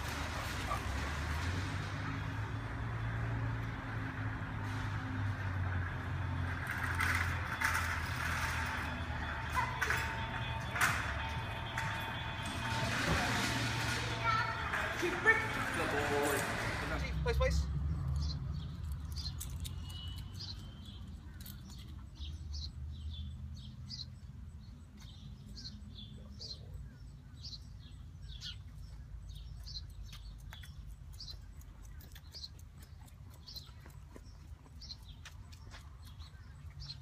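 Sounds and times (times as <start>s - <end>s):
small birds chirping: 17.0s - 37.0s.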